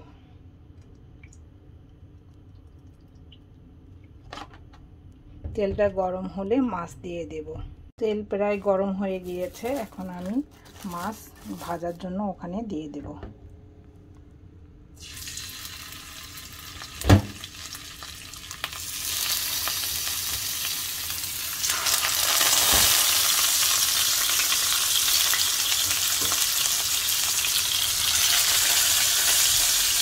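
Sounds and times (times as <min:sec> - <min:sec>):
fish sizzling in oil: 0:15.0 - 0:30.0.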